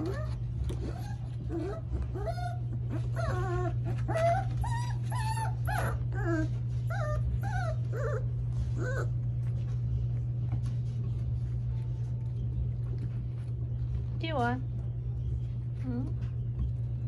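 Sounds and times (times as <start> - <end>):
puppies whining and whimpering: 0.0 - 10.4
steady low hum: 0.0 - 17.0.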